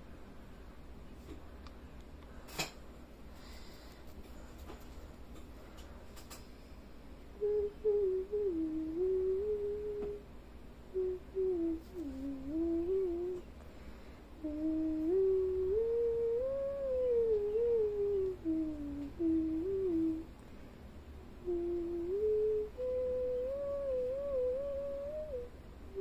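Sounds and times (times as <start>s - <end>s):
person humming: 7.4s - 10.3s, 10.9s - 13.5s, 14.4s - 20.3s, 21.4s - 26.0s.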